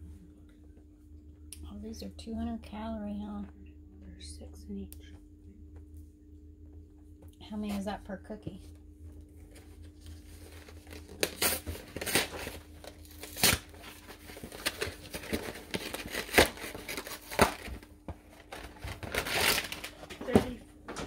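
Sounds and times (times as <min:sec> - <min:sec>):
snack packaging crinkling and tearing: 0:09.4 - 0:20.6.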